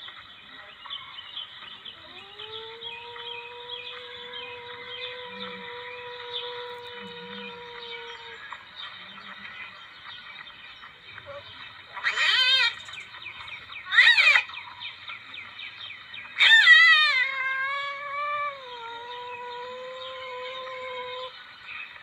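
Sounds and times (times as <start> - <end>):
civet wailing calls: 1.8 - 9.8, 11.2 - 14.8, 16.3 - 21.4.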